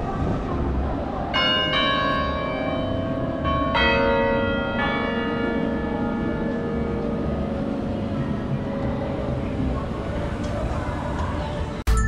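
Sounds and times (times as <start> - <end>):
bell tower bells ringing: 0.9 - 12.0.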